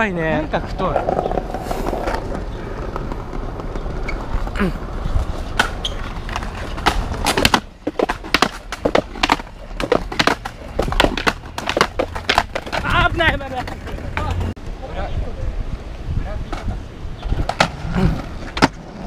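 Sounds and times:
skateboard wheels rolling on pavement: 0:00.0 - 0:19.0
skateboard clacking over joints: 0:00.3 - 0:14.6, 0:16.5 - 0:19.0.

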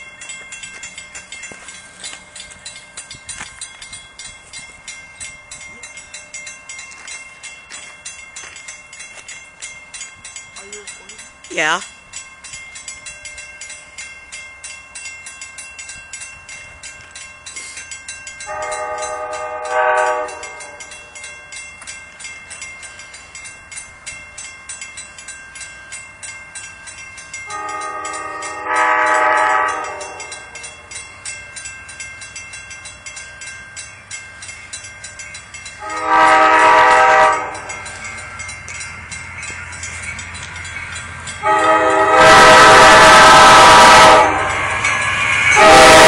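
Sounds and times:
crossing bell ringing: 0:00.0 - 0:46.0
train horn blasts: 0:18.5 - 0:20.8, 0:27.5 - 0:30.4, 0:35.8 - 0:37.9, 0:41.4 - 0:44.8, 0:45.4 - 0:46.0.

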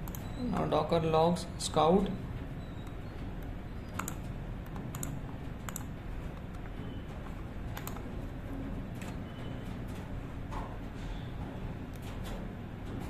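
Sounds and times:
computer keyboard clicks: 0:00.0 - 0:00.3, 0:02.8 - 0:06.6, 0:07.7 - 0:08.0
steady low background hum: 0:00.0 - 0:13.0.

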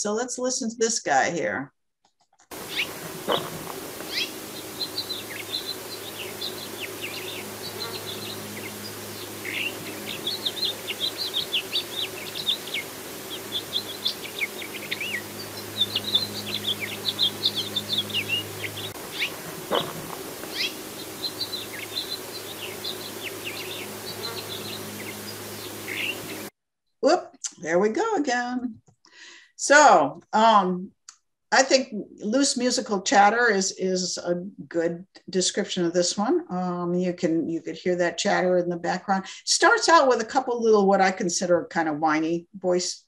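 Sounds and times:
finch song: 0:02.5 - 0:26.5.

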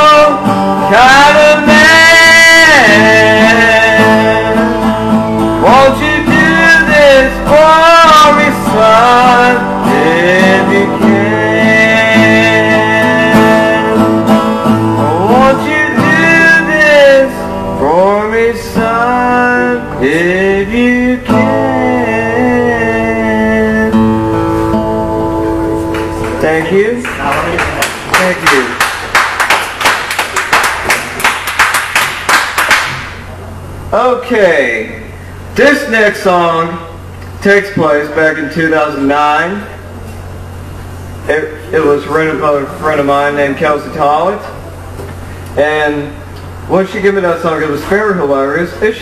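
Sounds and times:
man singing country song: 0:00.0 - 0:24.4
guitar chords: 0:00.0 - 0:29.2.

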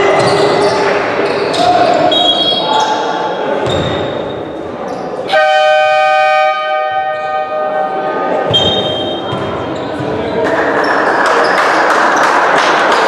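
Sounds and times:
shoes squeaking: 0:00.1 - 0:05.3, 0:08.5 - 0:11.9
loud electric horn blast: 0:05.3 - 0:08.0
ball bouncing: 0:08.5 - 0:11.6.

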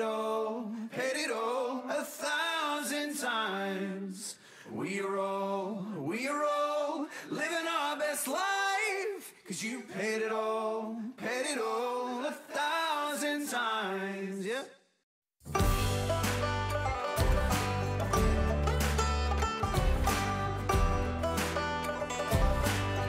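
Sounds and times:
song with sung vocals: 0:00.0 - 0:14.8
music with strong bass: 0:15.5 - 0:23.0.

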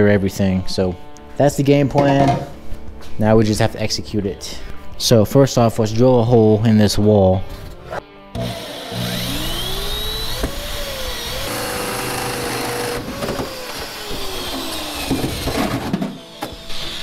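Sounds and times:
drill motor whine: 0:08.4 - 0:17.0
hole saw cutting sheet metal: 0:08.4 - 0:17.0.

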